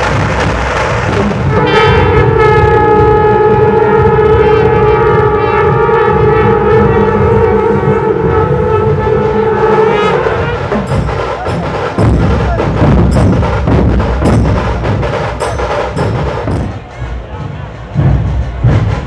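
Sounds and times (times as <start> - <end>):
barrel drums beaten with sticks: 0.0 - 17.1.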